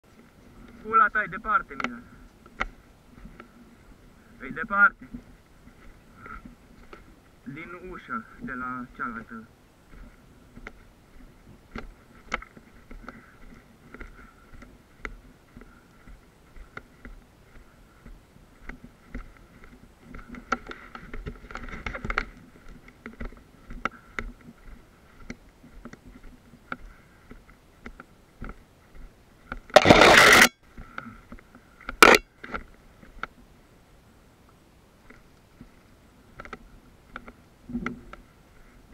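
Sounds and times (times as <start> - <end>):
footsteps over rubble: 0.1 - 33.2
rough scraping rush: 29.7 - 30.5.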